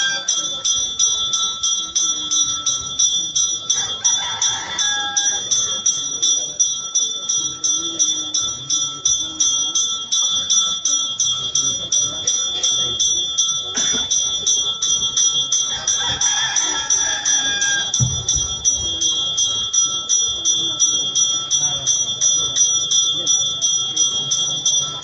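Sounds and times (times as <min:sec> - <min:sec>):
bell rung rapidly: 0:00.0 - 0:25.0.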